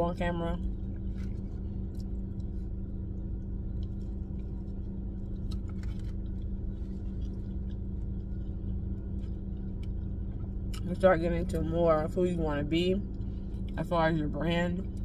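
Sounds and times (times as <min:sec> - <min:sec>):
parked car engine humming: 0:00.0 - 0:15.0.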